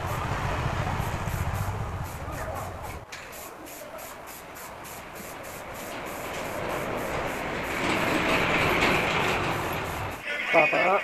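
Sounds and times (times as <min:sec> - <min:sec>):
aerosol spray can hissing: 0:01.0 - 0:02.4, 0:03.1 - 0:07.9, 0:09.4 - 0:10.2.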